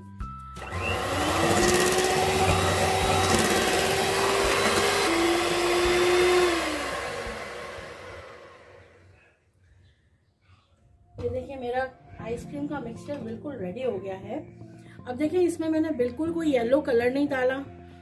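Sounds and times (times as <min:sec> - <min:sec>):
electric mixer whirring: 0:00.6 - 0:09.1.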